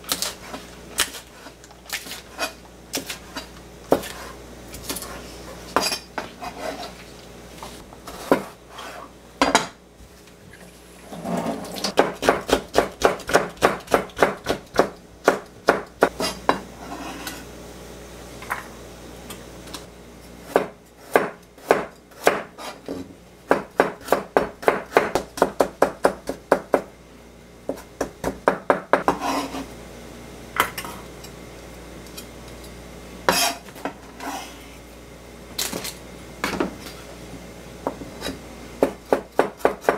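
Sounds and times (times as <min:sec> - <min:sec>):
knife chopping on cutting board: 0:11.9 - 0:16.6, 0:20.5 - 0:26.9, 0:27.7 - 0:29.6, 0:38.2 - 0:39.9.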